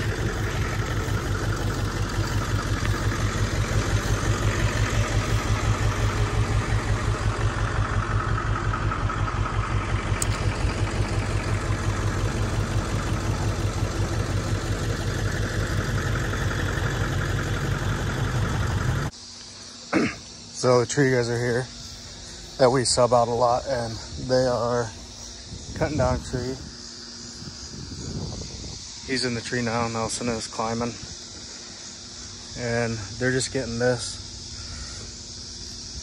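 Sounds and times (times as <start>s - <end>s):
truck engine idling: 0.0s - 36.0s.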